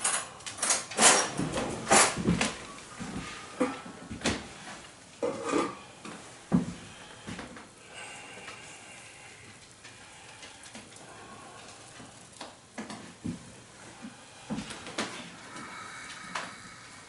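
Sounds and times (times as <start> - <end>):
broth simmering and bubbling: 2.7 - 17.0.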